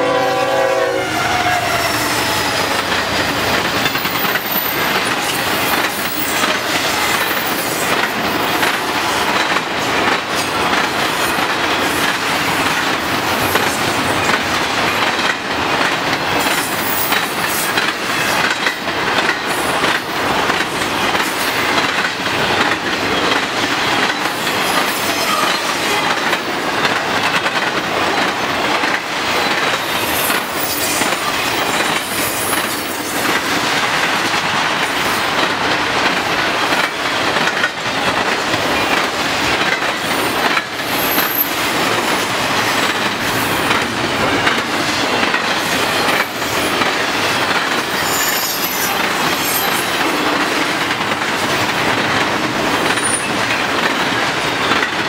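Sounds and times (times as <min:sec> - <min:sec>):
steel wheels rumbling on rails: 0:00.0 - 0:55.0
high wheel squeals: 0:48.0 - 0:49.9.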